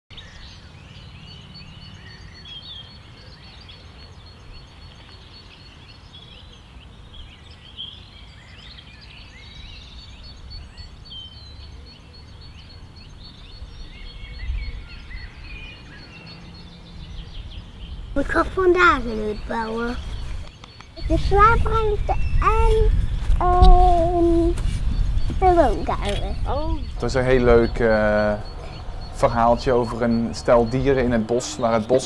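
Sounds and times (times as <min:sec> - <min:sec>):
songbirds chirping and singing: 0:00.1 - 0:32.0
low rumble: 0:21.0 - 0:31.8
high repeated bird note: 0:25.4 - 0:31.8.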